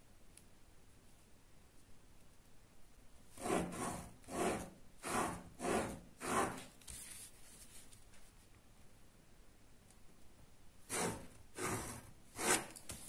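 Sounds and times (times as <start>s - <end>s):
pen drawing on paper: 3.4s - 6.7s, 10.8s - 12.9s.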